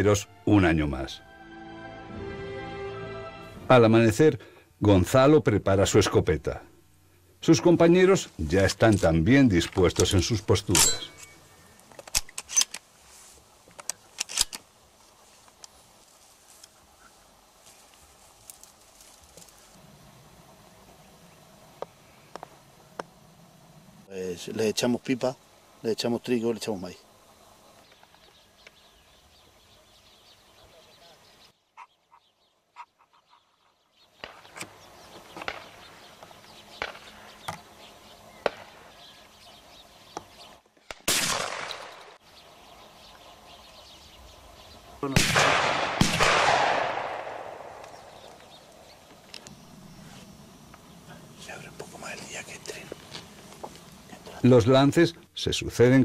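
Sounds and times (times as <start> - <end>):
shotgun metallic clicks: 9.7 - 12.9, 13.7 - 14.7, 45.3 - 49.6
small birds chirping: 12.6 - 41.0, 41.7 - 45.2, 47.0 - 56.0
sharp cracks: 13.7 - 14.7, 34.2 - 34.8, 35.4 - 35.9, 36.7 - 37.2, 38.4 - 38.9, 40.8 - 42.2, 45.0 - 49.5.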